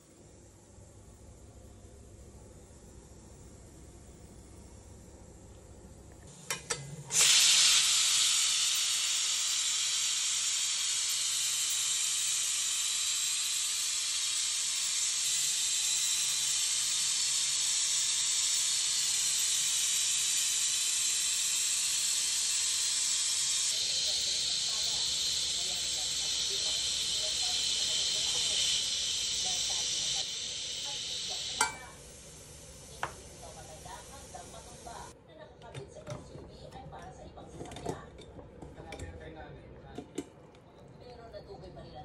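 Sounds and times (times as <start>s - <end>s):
pressure cooker steam hiss: 6.2s - 35.2s
pressure cooker clicks: 6.5s - 8.0s, 31.3s - 31.9s, 33.0s - 33.2s.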